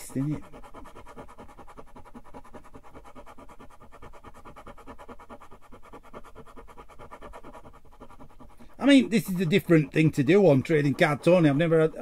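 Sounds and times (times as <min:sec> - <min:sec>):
scraping card coating: 0:00.0 - 0:12.0.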